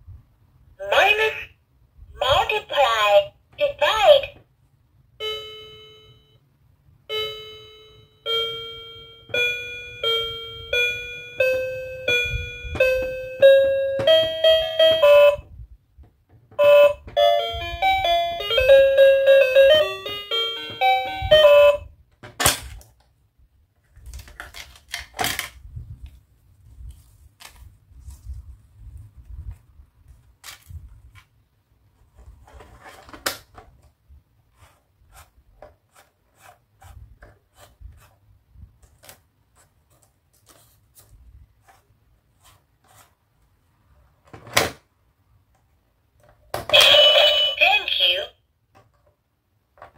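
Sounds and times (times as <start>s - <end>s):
toy keypad beeps: 16.6s - 21.9s, 46.7s - 48.2s.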